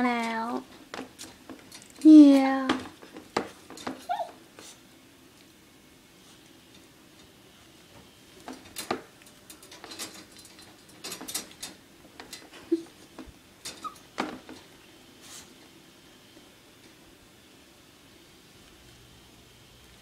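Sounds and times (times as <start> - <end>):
dog whimpering: 4.0 - 4.4.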